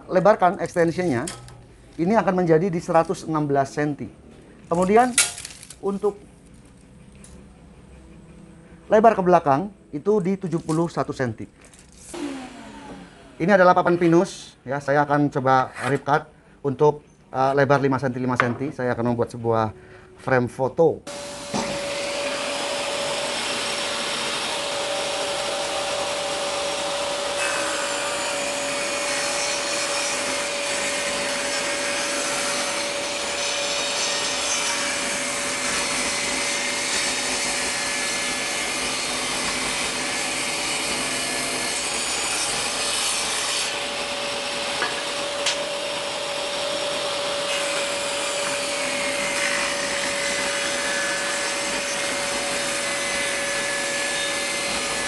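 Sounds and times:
table saw whining: 0:11.9 - 0:14.2, 0:21.1 - 0:55.0.

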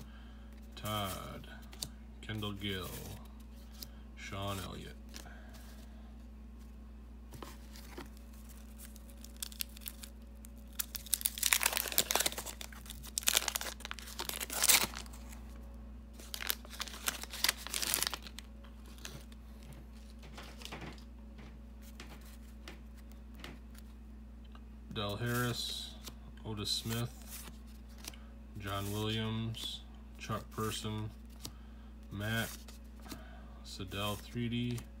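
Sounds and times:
wax paper wrapper crinkling: 0:07.4 - 0:15.6, 0:16.2 - 0:20.9.

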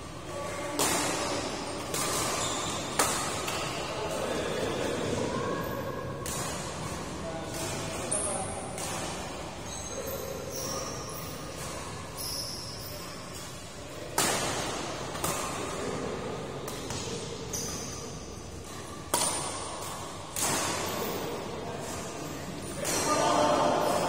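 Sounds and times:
rackets hitting shuttlecock: 0:00.6 - 0:04.4, 0:06.1 - 0:10.0, 0:13.3 - 0:24.0.

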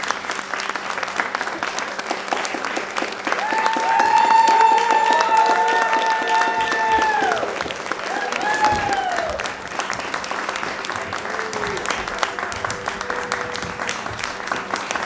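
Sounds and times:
audience clapping: 0:00.0 - 0:15.0
high whoops: 0:03.3 - 0:09.6.

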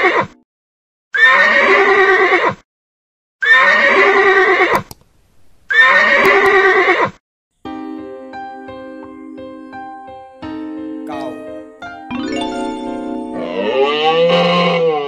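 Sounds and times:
horse whinnying: 0:01.2 - 0:02.6, 0:03.4 - 0:04.8, 0:05.7 - 0:07.2, 0:13.4 - 0:15.0.

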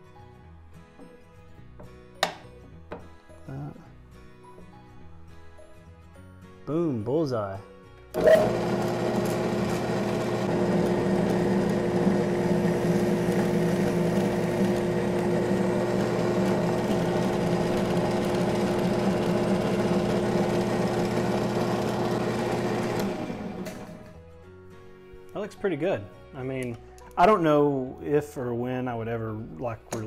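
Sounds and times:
drill press motor humming: 0:08.1 - 0:24.2.

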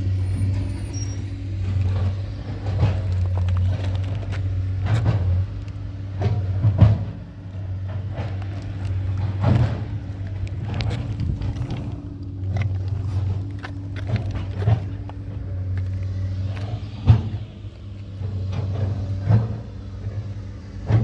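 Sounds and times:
heavy machinery engine humming: 0:00.0 - 0:21.0.

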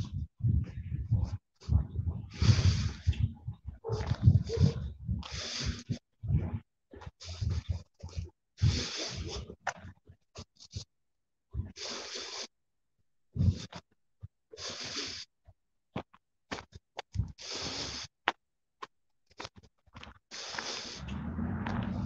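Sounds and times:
person breathing heavily: 0:00.0 - 0:09.6, 0:11.6 - 0:12.5, 0:14.6 - 0:15.3, 0:17.1 - 0:18.2, 0:20.3 - 0:22.0.

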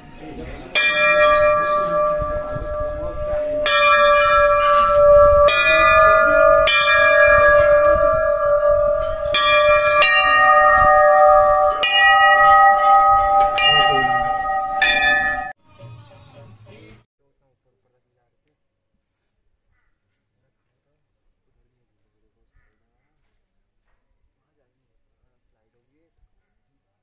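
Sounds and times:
brass bells ringing: 0:00.7 - 0:15.6.

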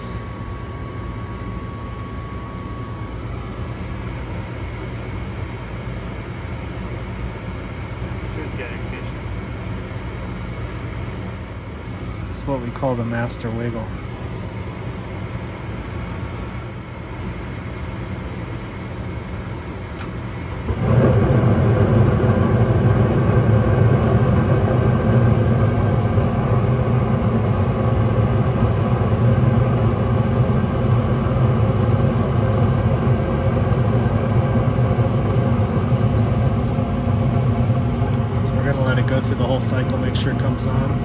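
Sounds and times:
burner rumble: 0:20.0 - 0:41.0.

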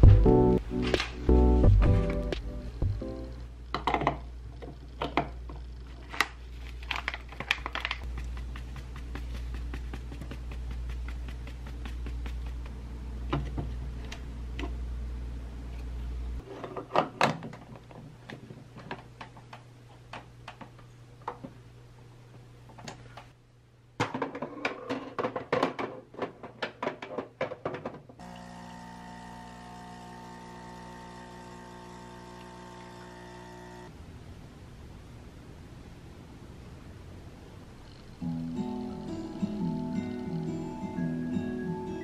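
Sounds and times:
low hum: 0:00.0 - 0:05.9
espresso pump buzzing: 0:28.2 - 0:33.9.

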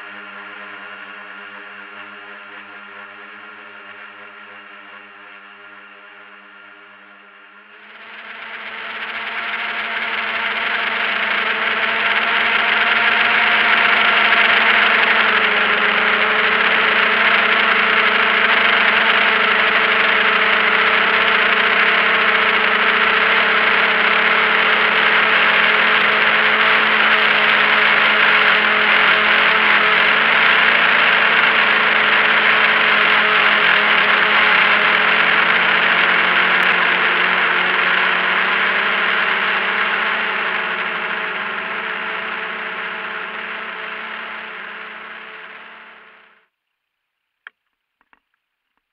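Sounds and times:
drone propellers whirring: 0:07.3 - 0:46.4.

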